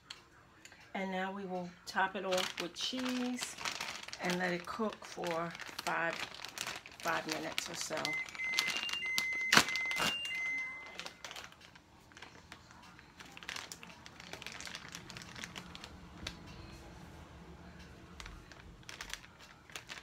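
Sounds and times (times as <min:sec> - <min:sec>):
plastic bag crinkling: 0:01.9 - 0:16.5, 0:18.1 - 0:20.0
short high beeps: 0:08.2 - 0:11.0.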